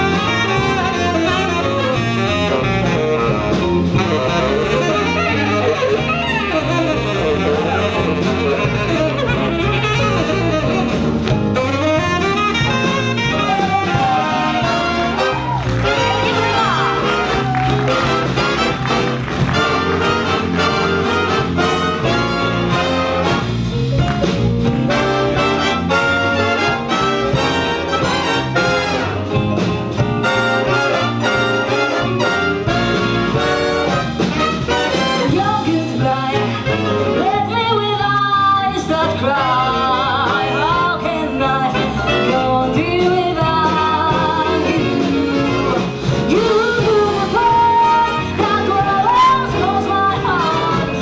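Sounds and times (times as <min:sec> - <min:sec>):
big band jazz horns: 0:00.0 - 0:51.0
woman singing: 0:35.2 - 0:51.0.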